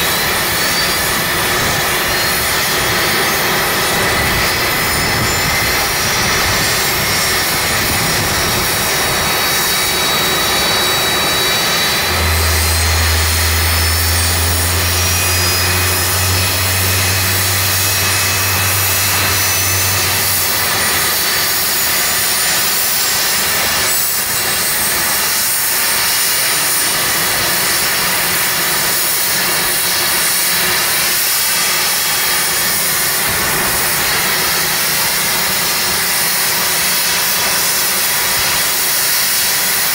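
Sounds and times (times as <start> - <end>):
helicopter turbine whine: 0.0 - 39.9
deep steady hum: 0.1 - 25.8.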